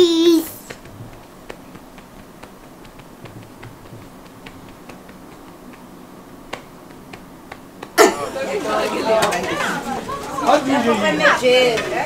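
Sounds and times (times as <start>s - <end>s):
small clicks and taps: 0.7s - 5.9s.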